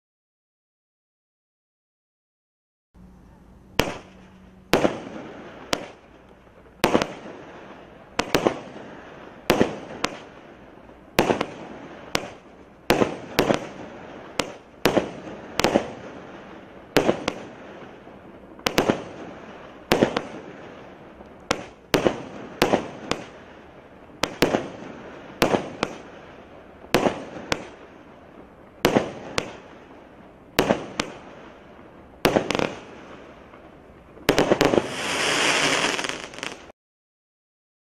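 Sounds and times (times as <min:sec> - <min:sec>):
fireworks reports: 0:34.2 - 0:36.7.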